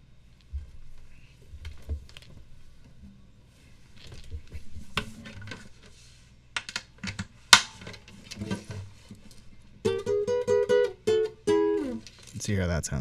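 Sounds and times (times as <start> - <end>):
guitar chord strummed: 9.8 - 12.1.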